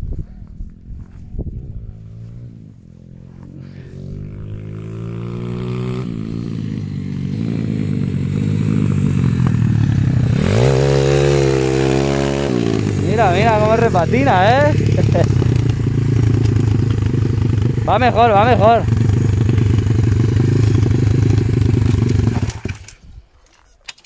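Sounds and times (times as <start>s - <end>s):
pit bike engine revving: 0.7s - 23.0s.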